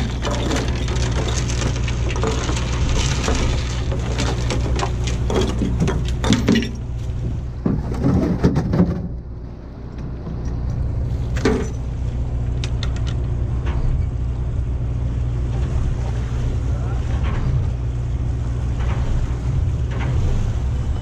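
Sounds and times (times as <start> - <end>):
chains and net rattling: 0.0 - 7.0
boat engine running: 0.0 - 21.0.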